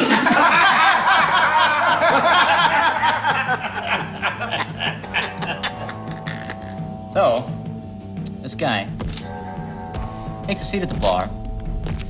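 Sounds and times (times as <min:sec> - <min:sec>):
men laughing loudly: 0:00.0 - 0:06.4.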